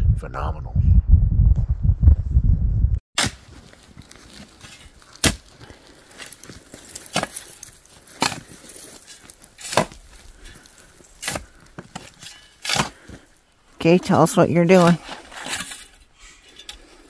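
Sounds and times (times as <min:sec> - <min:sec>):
digging tool striking rocky dirt: 0:03.2 - 0:13.3.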